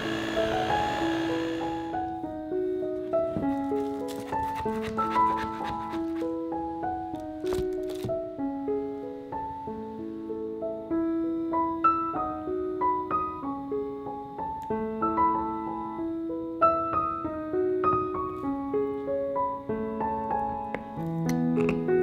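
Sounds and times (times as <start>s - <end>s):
solo piano music: 0.0s - 22.0s.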